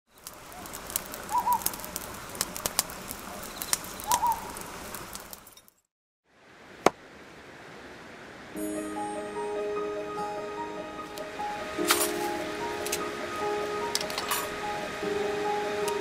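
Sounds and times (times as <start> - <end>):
wood fire crackling and popping: 0.1 - 5.8, 11.2 - 14.6.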